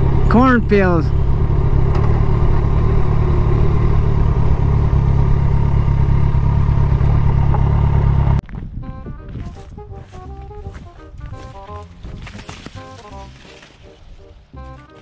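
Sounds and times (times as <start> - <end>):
motorcycle engine at low speed: 0.0 - 9.2
wind rumble on microphone: 8.4 - 12.4.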